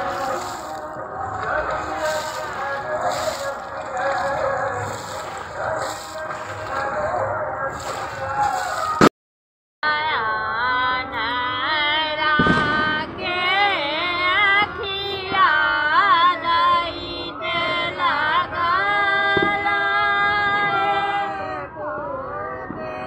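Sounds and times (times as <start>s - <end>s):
women singing folk song: 0.0s - 9.0s, 9.8s - 23.0s.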